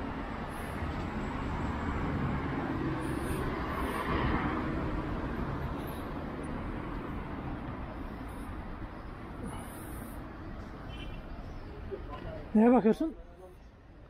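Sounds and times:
vehicle passing: 0:00.0 - 0:10.2
street traffic noise: 0:00.0 - 0:14.0.

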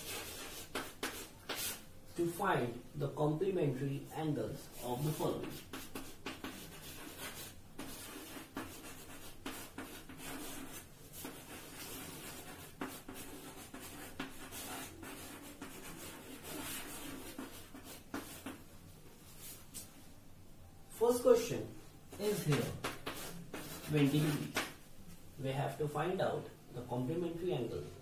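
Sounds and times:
chalk scratching on chalkboard: 0:00.0 - 0:01.8, 0:04.6 - 0:18.7, 0:19.3 - 0:20.0, 0:22.1 - 0:24.8
chalk tapping on board: 0:00.0 - 0:01.8, 0:05.0 - 0:18.6, 0:22.1 - 0:24.8.

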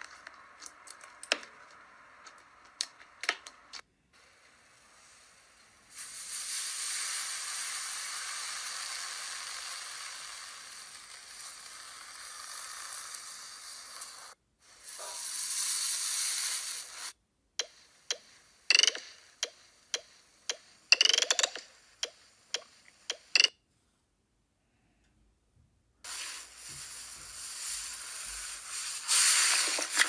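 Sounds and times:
slime squashing crackling hiss: 0:05.8 - 0:17.2, 0:26.1 - 0:30.0.

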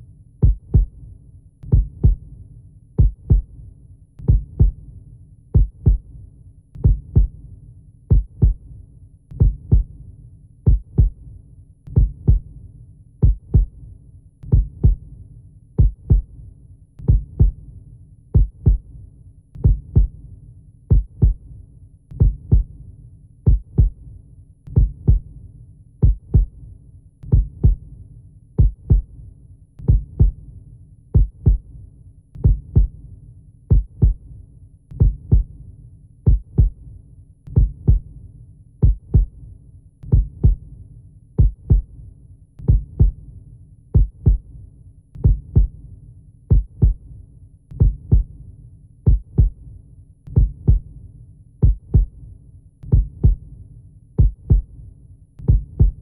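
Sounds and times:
heartbeat thumps: 0:00.4 - 0:01.0, 0:01.7 - 0:02.3, 0:03.0 - 0:03.5, 0:04.2 - 0:04.8, 0:05.6 - 0:06.1, 0:06.8 - 0:07.4, 0:08.1 - 0:08.6, 0:09.4 - 0:09.9, 0:10.7 - 0:11.2, 0:11.9 - 0:12.5, 0:13.2 - 0:13.8, 0:14.5 - 0:15.0, 0:15.8 - 0:16.3, 0:17.0 - 0:17.6, 0:18.4 - 0:18.9, 0:19.6 - 0:20.2, 0:20.9 - 0:21.4, 0:22.2 - 0:22.7, 0:23.5 - 0:24.0, 0:24.7 - 0:25.3, 0:26.0 - 0:26.6, 0:27.3 - 0:27.8, 0:28.6 - 0:29.1, 0:29.8 - 0:30.4, 0:31.2 - 0:31.7, 0:32.4 - 0:33.0, 0:33.7 - 0:34.2, 0:35.0 - 0:35.5, 0:36.3 - 0:36.8, 0:37.5 - 0:38.1, 0:38.8 - 0:39.4, 0:40.1 - 0:40.6, 0:41.4 - 0:41.9, 0:42.6 - 0:43.2, 0:44.0 - 0:44.5, 0:45.2 - 0:45.8, 0:46.5 - 0:47.0, 0:47.8 - 0:48.3, 0:49.1 - 0:49.6, 0:50.3 - 0:50.9, 0:51.6 - 0:52.2, 0:52.8 - 0:53.4, 0:54.2 - 0:54.7, 0:55.4 - 0:56.0.

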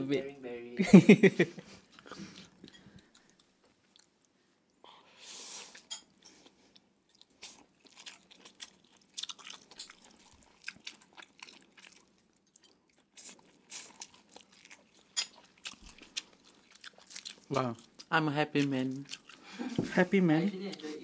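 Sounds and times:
wet chewing and mouth clicks: 0:01.9 - 0:04.4, 0:05.7 - 0:19.8, 0:20.7 - 0:21.0.

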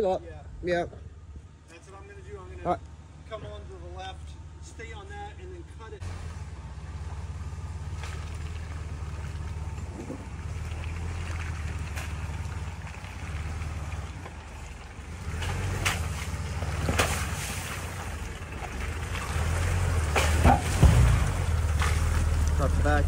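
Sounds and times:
off-road vehicle engine crawling: 0:00.0 - 0:23.0
sharp knocks: 0:20.1 - 0:21.4.

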